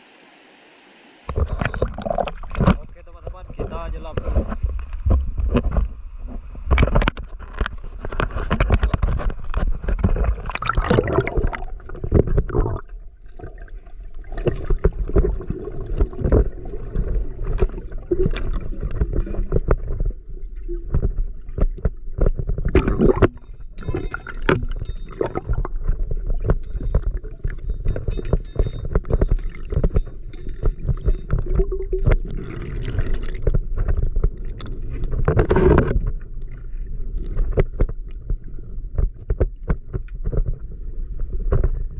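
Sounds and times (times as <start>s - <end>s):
underwater gurgling and bubbling: 1.3s - 41.9s.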